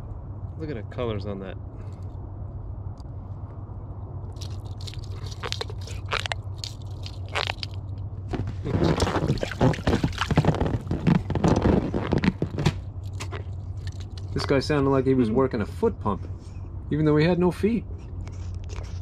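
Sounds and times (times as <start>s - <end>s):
pufferfish scraping and squeaking: 4.4s - 14.0s.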